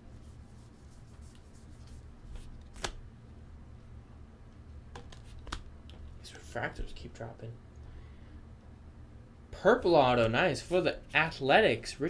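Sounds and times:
low steady hum: 0.0 - 12.0
cards being flipped: 1.2 - 3.0, 5.0 - 5.7
sharp card click: 2.7 - 3.0.

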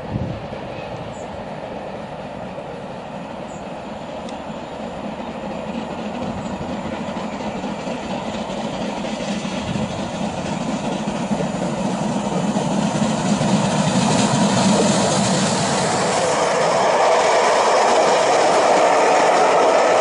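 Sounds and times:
steam train rumbling past: 0.0 - 20.0.

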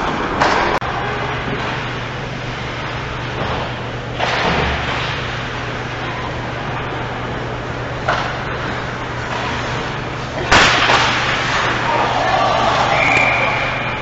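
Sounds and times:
constant low hum: 0.0 - 14.0
ice rink crowd wash: 8.6 - 14.0.

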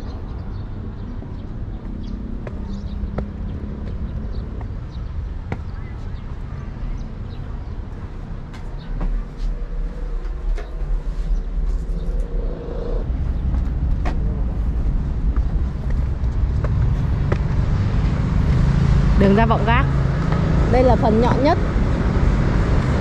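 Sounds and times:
steady low rumble: 0.0 - 23.0
humming tone: 9.6 - 14.8.

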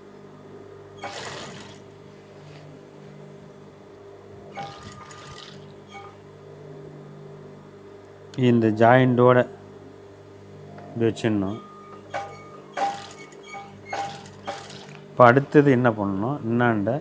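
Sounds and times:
sewing machine motor humming: 1.0 - 1.9, 4.5 - 5.9, 12.8 - 15.1
sewing machine stitching: 1.0 - 1.9, 4.6 - 5.7, 12.8 - 15.0.

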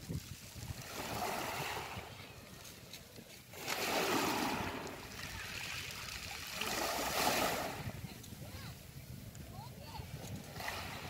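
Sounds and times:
waves washing on pebble beach: 0.0 - 8.0, 10.4 - 11.0.

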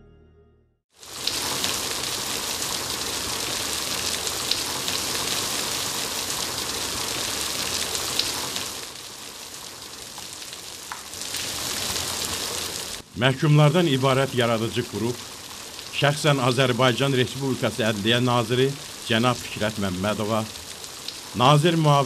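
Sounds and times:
louder raindrop hits: 1.0 - 13.1
steady rain hiss: 1.0 - 22.0.

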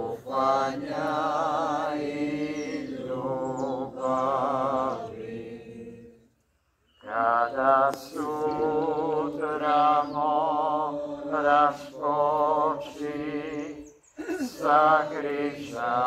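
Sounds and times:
person singing religious song: 0.0 - 6.2, 7.0 - 16.0.

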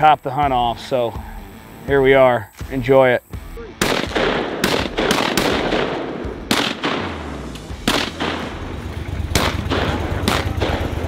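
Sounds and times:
shotgun firing: 3.8 - 8.7, 9.3 - 11.0.

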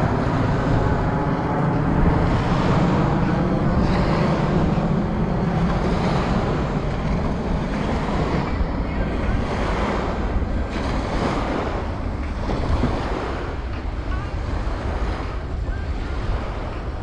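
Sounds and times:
wind rushing over microphone: 0.0 - 17.0
surf washing onto sandy beach: 2.0 - 17.0.

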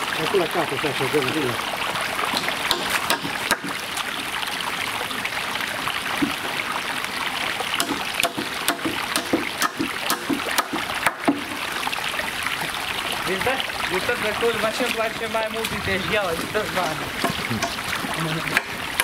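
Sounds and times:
sharp wooden knocks: 2.3 - 3.8, 6.2 - 6.4, 7.8 - 11.7, 16.5 - 19.0.

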